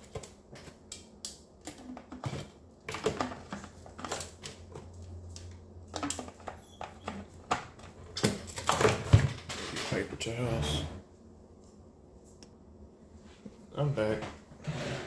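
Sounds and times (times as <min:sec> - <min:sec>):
plastic parts clicking and knocking: 0:00.0 - 0:10.0.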